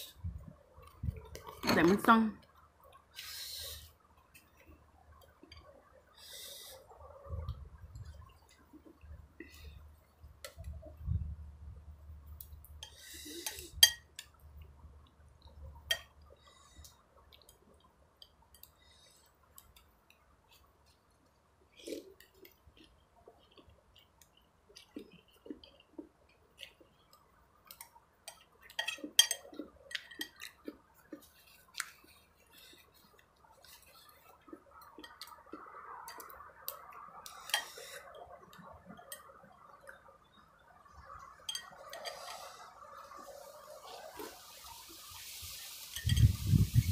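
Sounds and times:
fork and spoon clinking on bowl: 13.5 - 14.2, 28.3 - 30.5, 41.5 - 42.4, 45.9 - 46.3
person chewing: 18.6 - 39.2.

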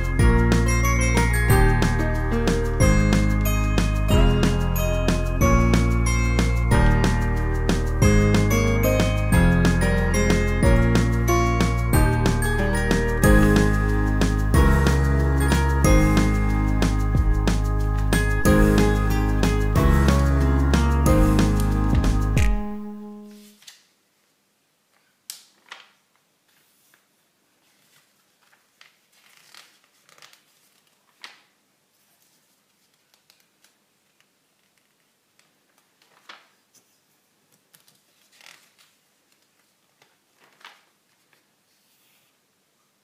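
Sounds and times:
background music: 0.0 - 23.5
magazine pages turning: 25.4 - 37.0, 37.6 - 42.4.

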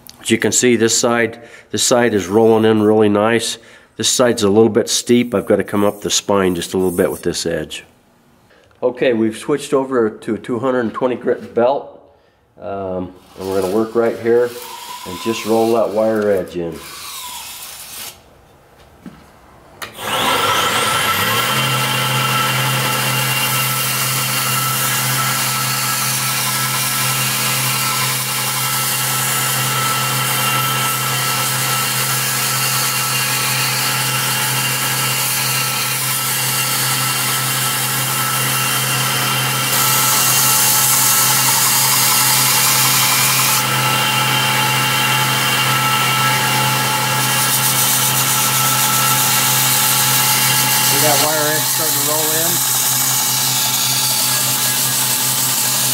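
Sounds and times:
belt grinder motor hum: 13.2 - 18.2, 19.9 - 55.9
steel blade grinding on belt: 47.2 - 55.9.

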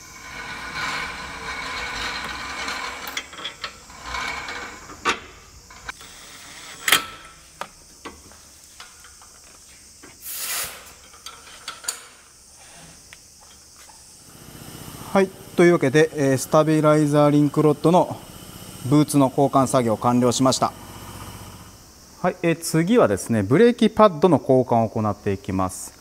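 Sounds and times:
ratchet buzzing and clicking: 0.1 - 7.4, 10.2 - 12.4, 13.3 - 21.8
brief hiss: 10.1 - 11.0.

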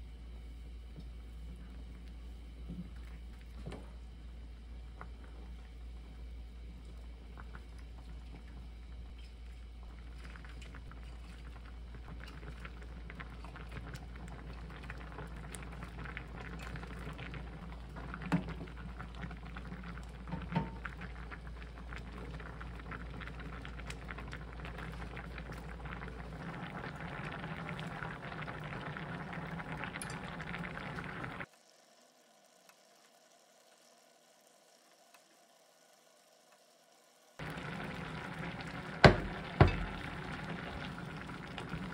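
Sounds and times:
stew bubbling in a saucepan: 0.0 - 41.9
ladle knocking on pan: 39.0 - 40.0.

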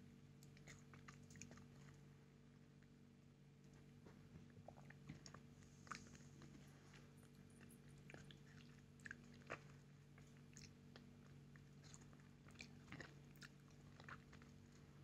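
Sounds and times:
mango being bitten and chewed: 6.9 - 14.8.

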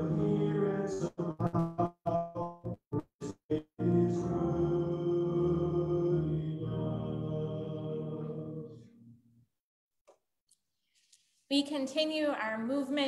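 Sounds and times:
small vocal group singing: 0.0 - 2.8, 3.5 - 9.1
bass guitar: 0.0 - 4.0.

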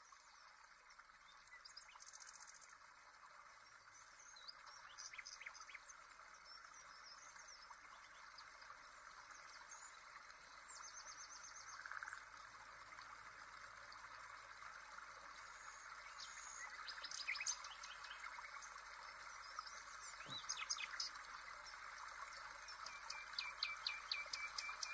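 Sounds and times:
faint birdsong chirps: 0.0 - 12.8, 13.5 - 24.9.

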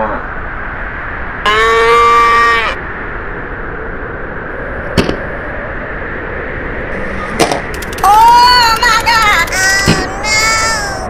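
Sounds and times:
steady rushing noise: 2.8 - 11.0.

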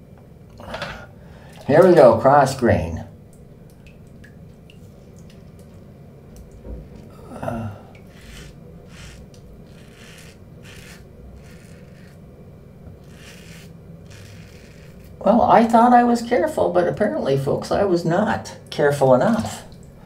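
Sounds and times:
razor scraping stubble: 8.0 - 12.2, 12.9 - 15.3.

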